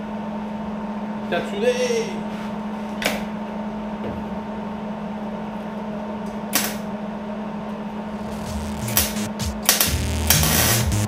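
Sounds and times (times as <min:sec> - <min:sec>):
steady welder hum: 0:07.9 - 0:11.0.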